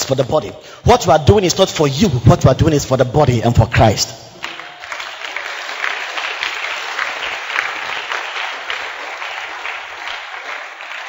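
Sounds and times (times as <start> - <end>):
congregation applauding: 3.8 - 11.0.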